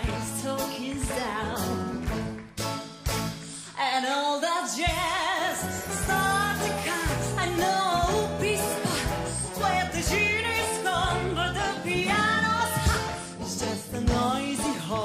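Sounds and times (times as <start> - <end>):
woman singing with vibrato: 3.7 - 15.0
bass line: 5.6 - 15.0.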